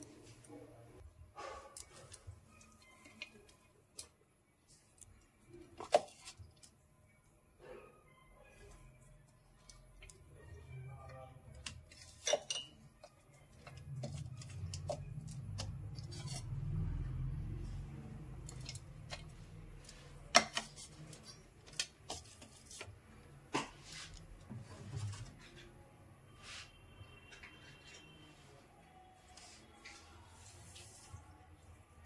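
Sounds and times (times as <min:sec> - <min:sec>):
ceramic dishes clinking: 0:11.9 - 0:13.0.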